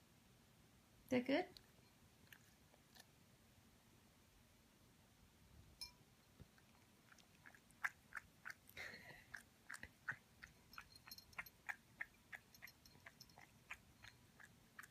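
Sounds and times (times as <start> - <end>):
cat lapping: 6.3 - 14.9.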